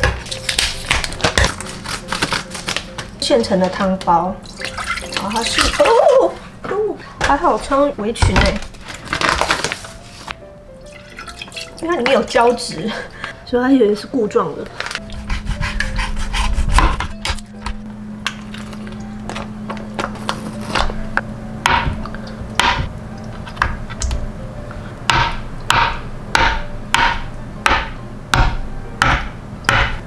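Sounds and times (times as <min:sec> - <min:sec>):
knife chopping on cutting board: 0:15.2 - 0:17.4, 0:21.7 - 0:22.9, 0:25.1 - 0:30.0.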